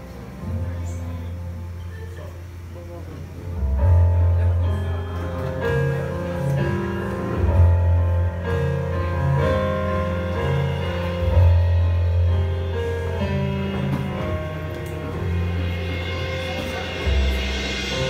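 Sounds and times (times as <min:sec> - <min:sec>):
keyboard chords: 0:00.0 - 0:18.0
electric bass line: 0:03.7 - 0:18.0.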